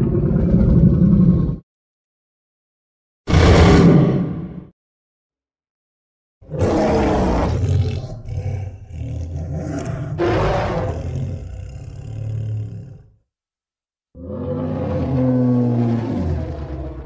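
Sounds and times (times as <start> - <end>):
monster roar: 6.4 - 13.2, 14.2 - 17.0.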